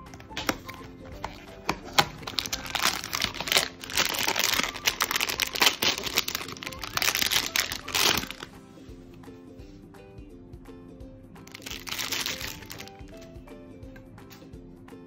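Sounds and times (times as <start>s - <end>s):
foil bag crinkling: 0.0s - 8.5s, 11.5s - 13.0s.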